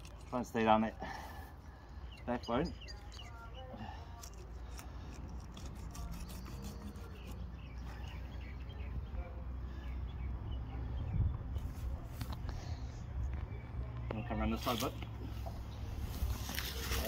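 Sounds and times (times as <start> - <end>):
knife scraping through fish: 4.0 - 7.4.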